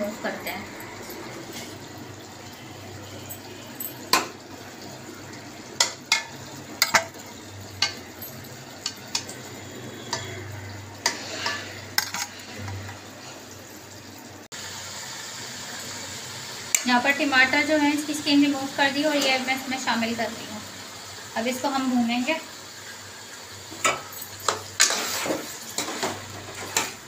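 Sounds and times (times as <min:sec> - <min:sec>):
food sizzling in oil: 0:00.0 - 0:27.0
ladle clinking in metal pot: 0:05.8 - 0:07.2.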